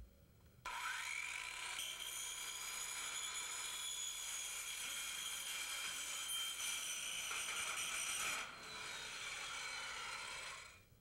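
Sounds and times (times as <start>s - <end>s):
circular saw cutting metal: 0.7s - 10.8s.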